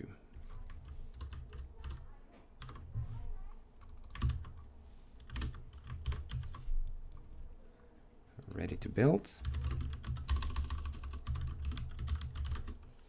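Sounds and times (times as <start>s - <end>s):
keyboard typing: 0.4s - 2.9s, 3.8s - 7.3s, 9.4s - 12.9s.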